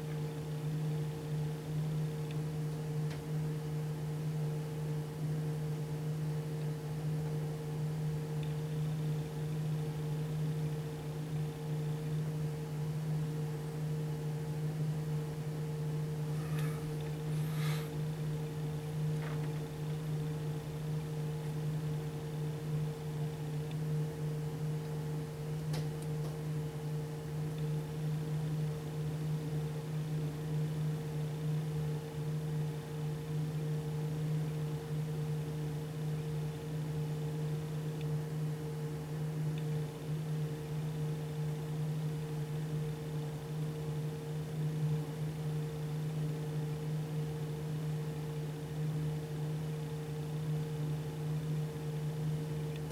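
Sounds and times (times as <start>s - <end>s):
machine hum: 0.0s - 23.7s.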